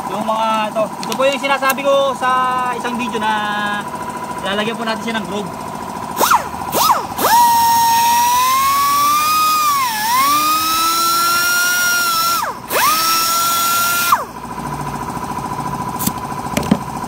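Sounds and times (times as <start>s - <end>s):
rotary tool whining cutting plastic: 6.2s - 14.3s.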